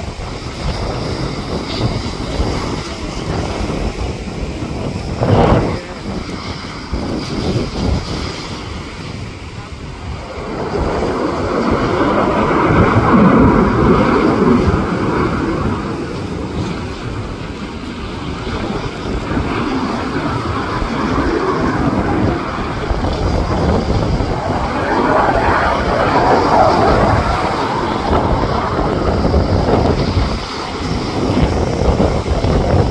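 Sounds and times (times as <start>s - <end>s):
fighter jet engine rumble: 0.0s - 32.9s
wind buffeting microphone: 0.0s - 32.9s.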